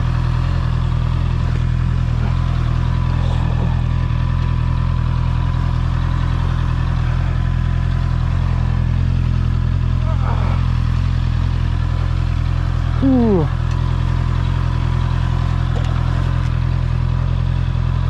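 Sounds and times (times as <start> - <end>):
motorcycle engine idling: 0.0 - 18.0.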